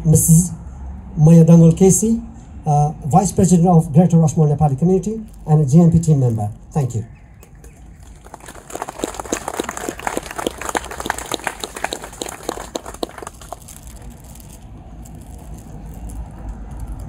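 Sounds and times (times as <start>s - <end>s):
low background rumble: 0.0s - 17.0s
audience applauding: 7.5s - 13.9s.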